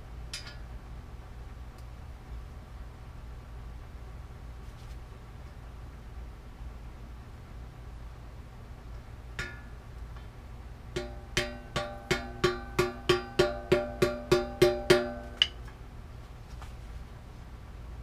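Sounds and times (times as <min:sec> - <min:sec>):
hammer striking metal: 0:09.4 - 0:09.7, 0:11.0 - 0:15.6.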